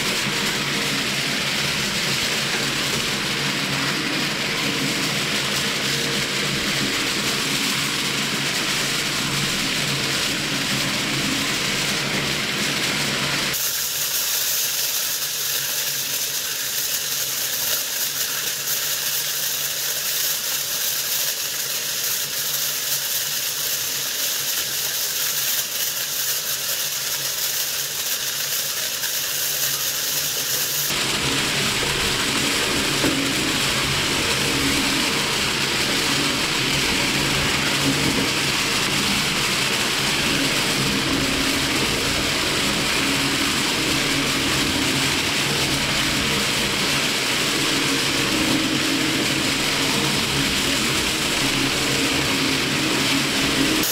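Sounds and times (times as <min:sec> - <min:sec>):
shredder machine hum: 0:00.0 - 0:53.9
foil crinkling hiss: 0:13.5 - 0:53.9.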